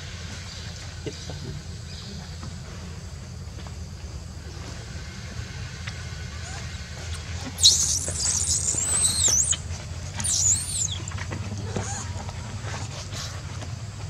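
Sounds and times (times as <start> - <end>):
baby monkey screaming: 6.4 - 12.2.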